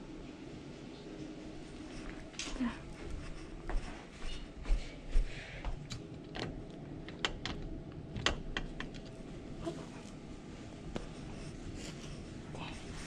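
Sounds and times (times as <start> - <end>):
sharp clicks and light knocks: 5.9 - 9.1.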